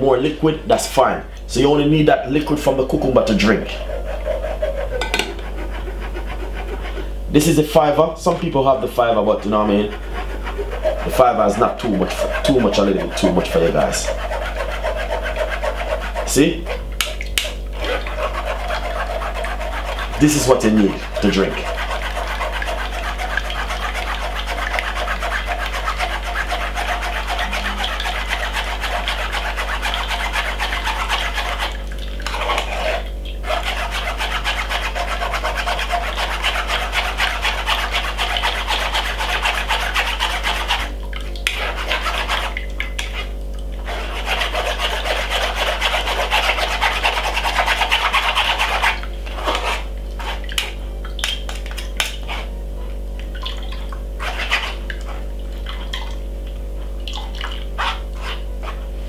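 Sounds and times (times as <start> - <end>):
metal spoon scraping a wire sieve: 3.2 - 7.0, 9.4 - 16.8, 17.8 - 40.9.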